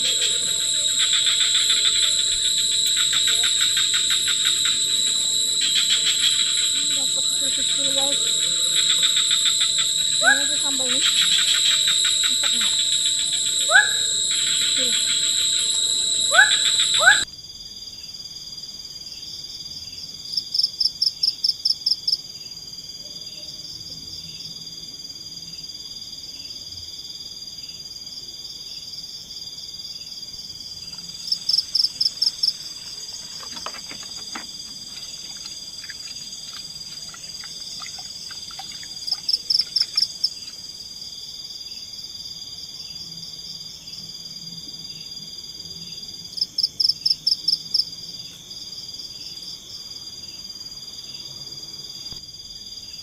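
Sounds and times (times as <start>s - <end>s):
pulsing animal call: 0.0s - 17.2s
insects trilling: 0.0s - 53.0s.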